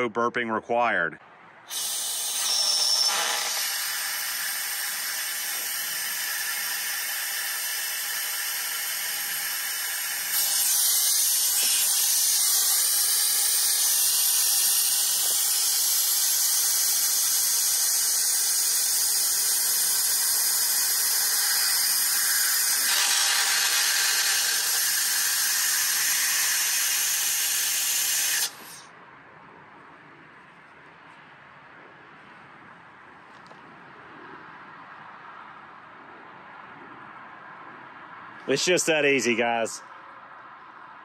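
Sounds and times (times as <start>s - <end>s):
compressed air hissing: 10.2s - 21.0s, 27.9s - 28.8s.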